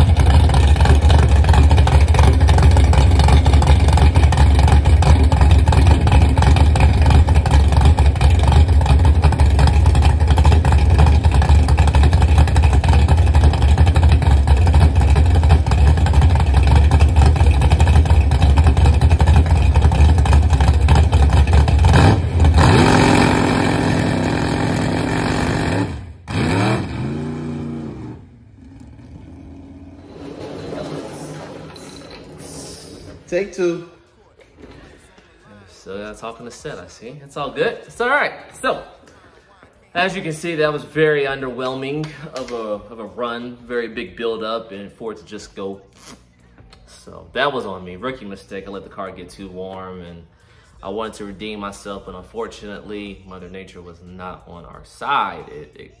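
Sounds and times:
race car engine idling: 0.0 - 30.3.

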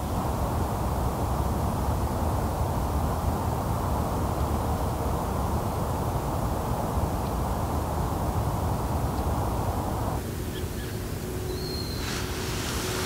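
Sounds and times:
faint steady hum: 0.0 - 13.0
quiet hiss: 0.0 - 13.0.

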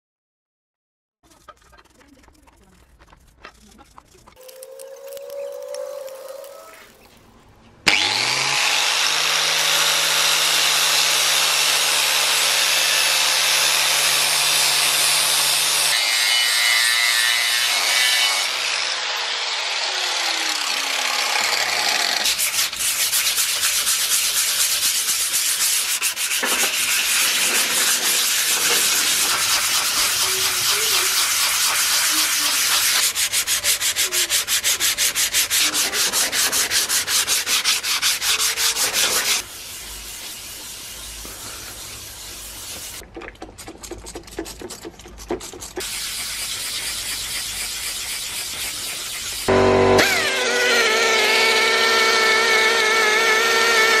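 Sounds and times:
sandpaper rubbing on metal: 1.3 - 4.4, 22.2 - 43.0, 43.9 - 49.6
angle grinder grinding metal: 7.9 - 24.2, 25.2 - 39.4, 49.2 - 54.0.

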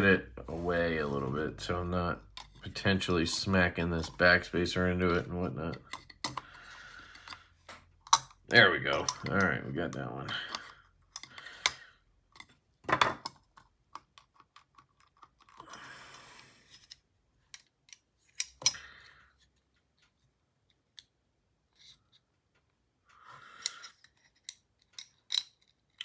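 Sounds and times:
small metal clicks and clinks: 23.6 - 26.0.

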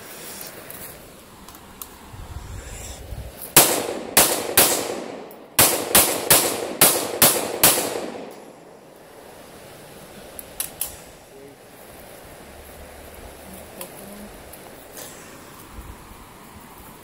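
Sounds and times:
handgun shots: 3.6 - 8.5.

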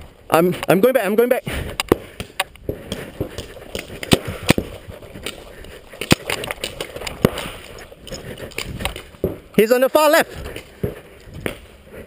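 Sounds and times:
paintball markers firing: 1.8 - 7.5.

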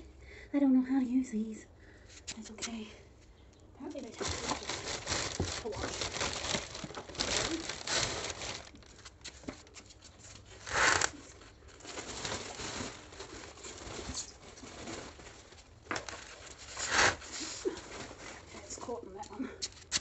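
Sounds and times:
plastic wrap crinkling: 3.9 - 20.0
plastic wrap tearing: 4.0 - 18.7.

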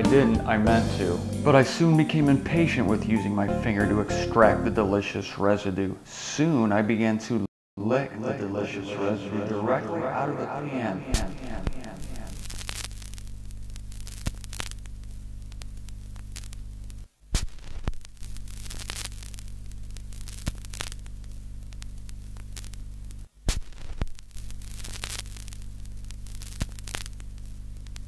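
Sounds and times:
low electrical hum: 4.8 - 17.2, 18.0 - 23.4
static crackle and pops: 8.8 - 28.0.

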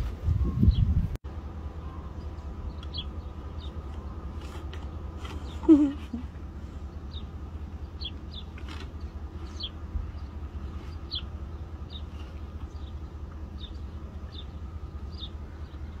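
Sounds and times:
steady low rumble: 0.0 - 16.0
small bird chirping: 2.1 - 4.6, 6.8 - 16.0.

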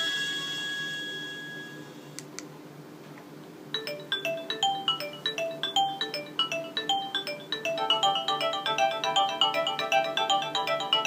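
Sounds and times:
phone ringtone melody: 3.8 - 11.0.

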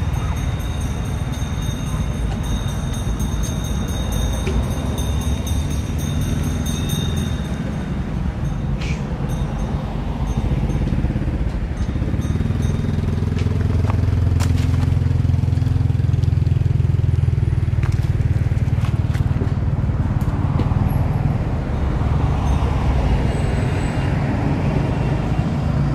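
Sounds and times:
vehicle engine rumble: 0.0 - 25.9.

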